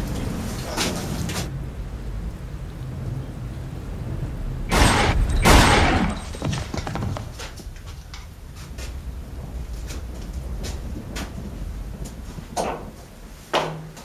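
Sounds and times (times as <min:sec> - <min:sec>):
loud gunshots with echo: 0:04.7 - 0:06.4.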